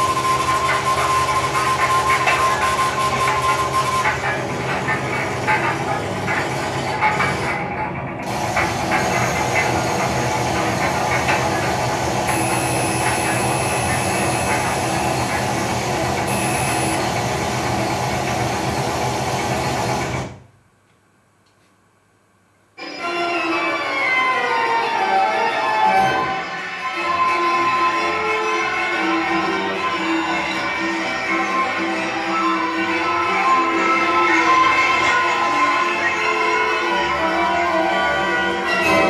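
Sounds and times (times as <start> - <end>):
dense noisy sound-effect track: 0.0 - 20.6
held tones: 12.3 - 15.4, 16.2 - 17.2.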